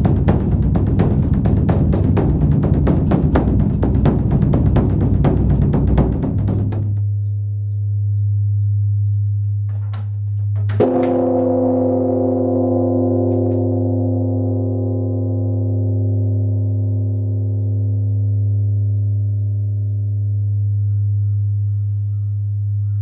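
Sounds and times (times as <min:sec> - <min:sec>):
deep steady bell hum: 0:00.0 - 0:23.0
large temple bell ringing: 0:10.8 - 0:19.7.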